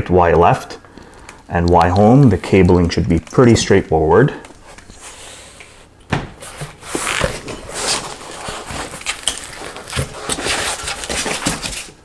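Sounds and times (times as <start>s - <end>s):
foam packing rustling and scraping: 4.6s - 12.0s.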